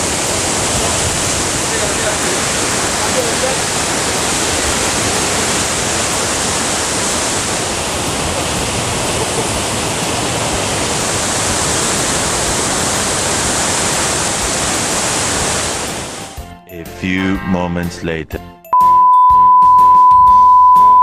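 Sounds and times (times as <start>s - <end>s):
waterfall rushing over rocks: 0.0s - 16.3s.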